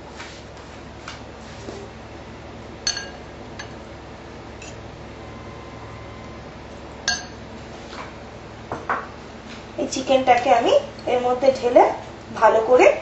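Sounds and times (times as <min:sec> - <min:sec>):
dish and glass bowl clinking: 0:02.9 - 0:03.8, 0:07.1 - 0:07.4.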